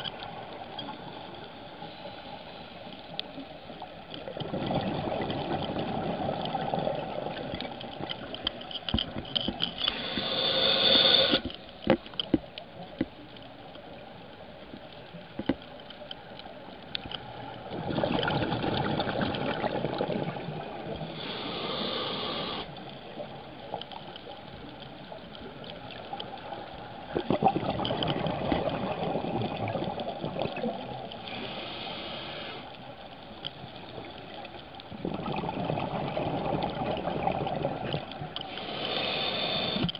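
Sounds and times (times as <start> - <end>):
underwater wash: 0.0 - 39.9
regulator breathing bubbles and hiss: 9.8 - 11.5, 21.0 - 22.7, 31.2 - 32.7, 38.5 - 39.9.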